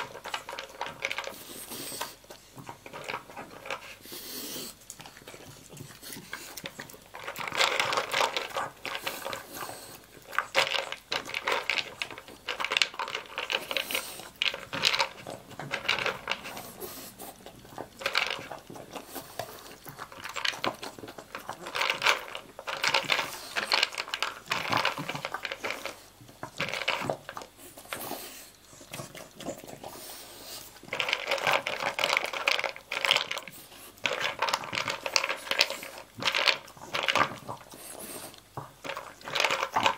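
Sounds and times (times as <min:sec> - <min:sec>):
kibble rattling in plastic bowl: 0:00.0 - 0:39.9.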